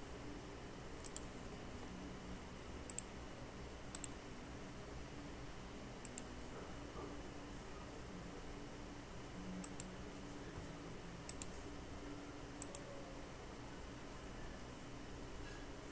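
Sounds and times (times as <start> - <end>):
room hum: 0.0 - 15.9
mouse clicks: 1.0 - 1.3, 2.9 - 3.1, 3.9 - 4.2, 6.0 - 6.3, 9.6 - 9.9, 11.3 - 11.5, 12.6 - 12.9.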